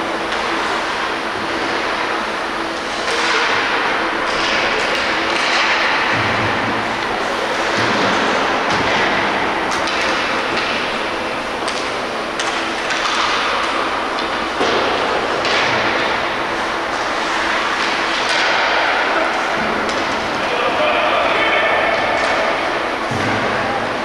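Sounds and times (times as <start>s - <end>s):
hockey sticks and puck clacking: 0.3s - 2.0s, 2.9s - 23.6s.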